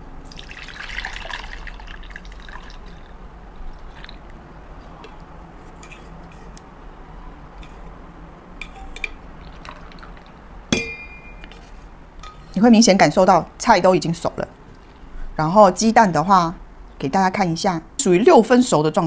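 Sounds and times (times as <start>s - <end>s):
soup trickling into bowl: 0.2s - 4.4s, 8.6s - 10.6s.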